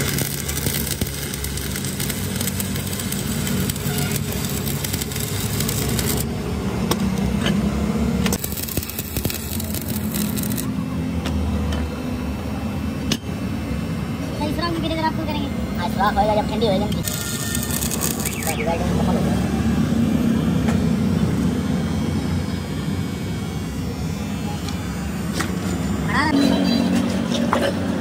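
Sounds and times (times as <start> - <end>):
welding arc hissing: 0.0 - 7.2, 8.3 - 10.8, 14.4 - 20.3
steady low hum: 0.0 - 27.4.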